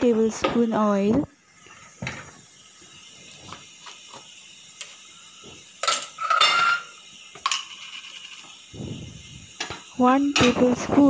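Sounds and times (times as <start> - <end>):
metal pot scraping on grate: 5.8 - 8.5.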